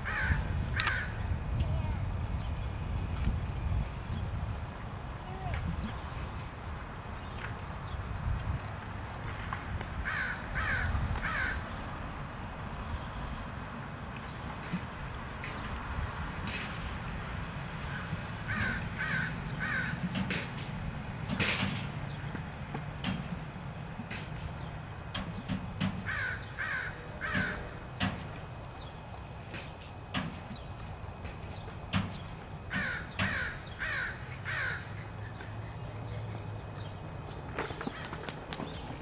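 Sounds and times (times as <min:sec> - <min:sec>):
crow cawing: 0:00.0 - 0:01.2, 0:10.0 - 0:11.6, 0:17.9 - 0:20.0, 0:26.0 - 0:27.8, 0:32.7 - 0:35.5.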